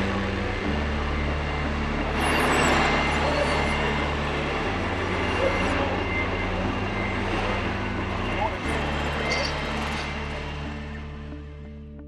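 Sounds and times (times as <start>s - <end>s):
model machine engine running: 0.0s - 11.5s.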